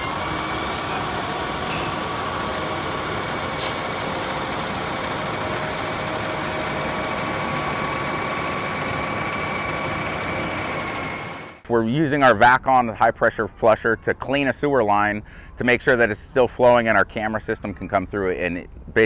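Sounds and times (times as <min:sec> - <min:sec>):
sewer truck machinery whine: 0:00.0 - 0:11.6.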